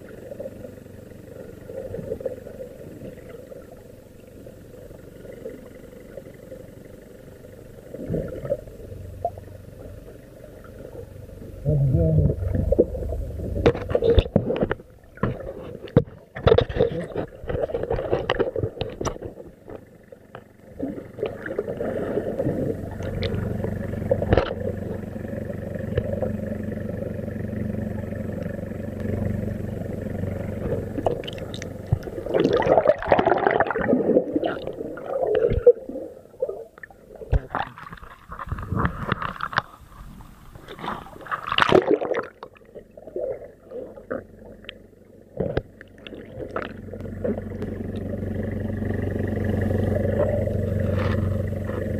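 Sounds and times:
steady hum: 0:00.0 - 0:51.9
water gurgling underwater: 0:07.8 - 0:19.7, 0:20.7 - 0:26.4, 0:30.2 - 0:48.3, 0:49.7 - 0:51.9.

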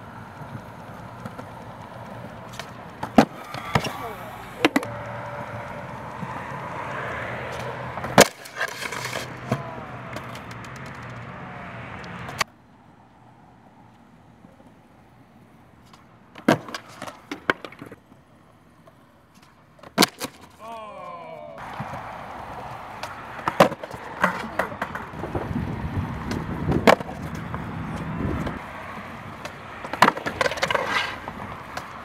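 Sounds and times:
skateboard clacking on concrete: 0:00.0 - 0:12.5, 0:15.4 - 0:20.6, 0:21.6 - 0:32.0
skateboard popping: 0:00.0 - 0:12.5, 0:13.9 - 0:20.6, 0:21.6 - 0:32.0
skateboard wheels rolling: 0:00.0 - 0:32.0
skateboard clattering away: 0:01.2 - 0:04.9, 0:07.4 - 0:11.3, 0:16.4 - 0:18.0, 0:19.8 - 0:20.5, 0:23.0 - 0:25.3, 0:26.3 - 0:27.4, 0:29.4 - 0:31.9.

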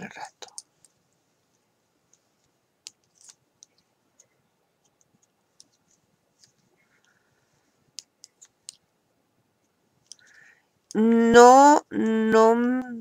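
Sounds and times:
knitting needles clicking: 0:00.4 - 0:01.0, 0:02.1 - 0:07.2, 0:07.9 - 0:08.9, 0:10.0 - 0:11.0.

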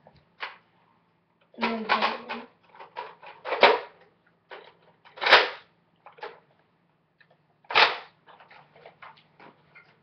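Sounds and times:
plastic toy blaster clacks: 0:01.6 - 0:06.4, 0:07.7 - 0:08.6.

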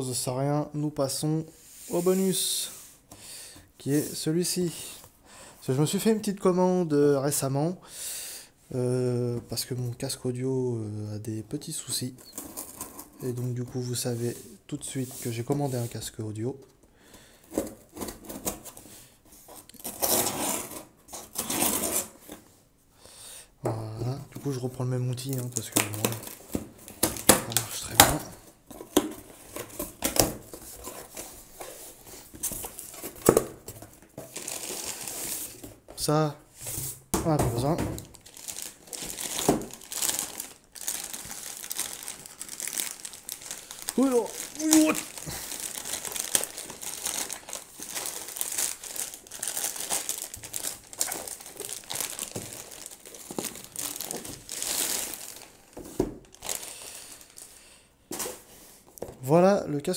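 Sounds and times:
plastic bag crinkling: 0:32.1 - 0:35.7, 0:37.6 - 0:57.5.

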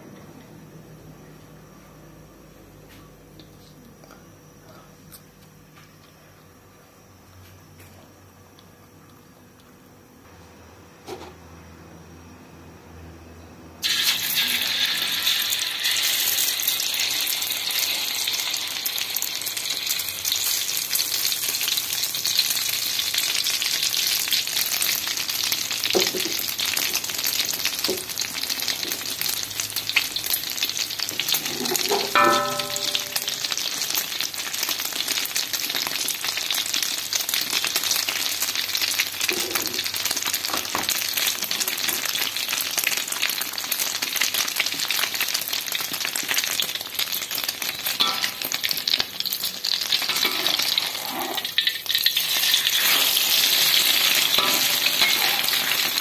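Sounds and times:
egg sizzling in hot oil: 0:13.8 - 0:56.0.

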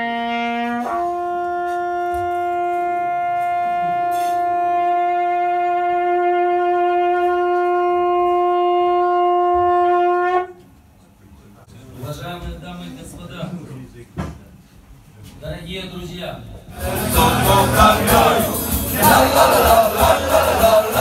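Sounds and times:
horn blowing two notes: 0:00.0 - 0:10.7.

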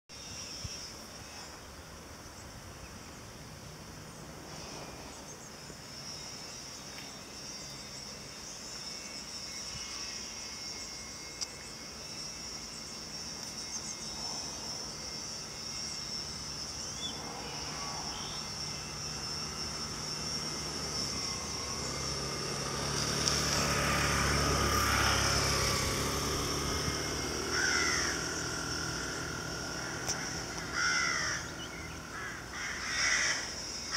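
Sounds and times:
insect chirring: 0:00.1 - 0:33.9
low engine drone: 0:00.1 - 0:33.9
bird calls: 0:15.7 - 0:19.1, 0:27.5 - 0:33.9.

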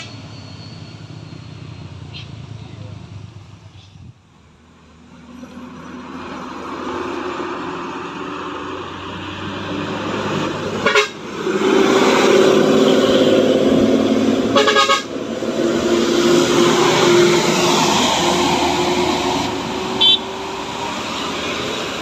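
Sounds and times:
bus diesel engines passing: 0:00.0 - 0:22.0
bus horn blasts: 0:10.7 - 0:11.3, 0:12.8 - 0:15.3, 0:20.0 - 0:20.3.

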